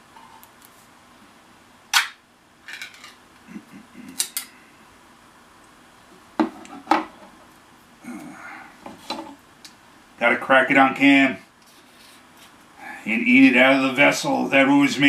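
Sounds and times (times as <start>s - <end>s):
can lid popping open: 1.9s - 2.2s.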